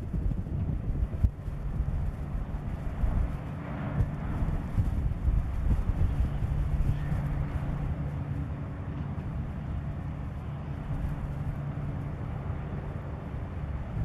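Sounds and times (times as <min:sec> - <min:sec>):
ship diesel engine drone: 0:00.0 - 0:14.0.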